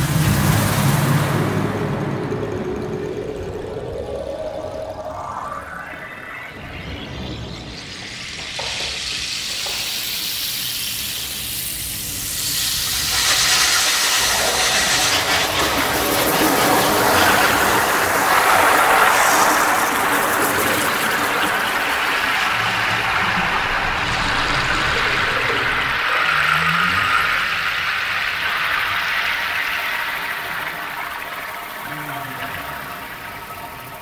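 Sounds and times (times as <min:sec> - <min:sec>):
rushing hiss: 0:07.5 - 0:34.0.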